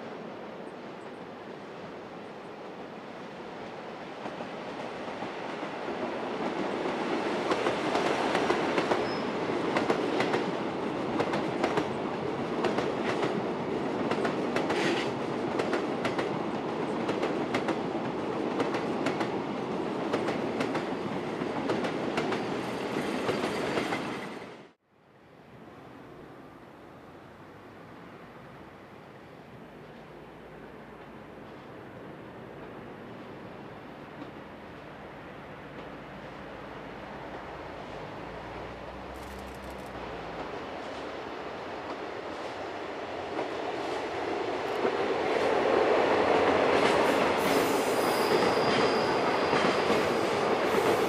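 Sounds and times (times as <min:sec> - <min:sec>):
freight train rolling past: 0:02.2 - 0:24.7, 0:29.7 - 0:51.0.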